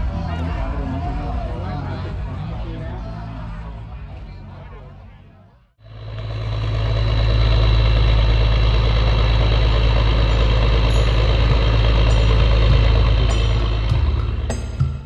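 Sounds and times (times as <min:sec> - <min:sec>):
large engine humming: 0:00.0 - 0:15.0.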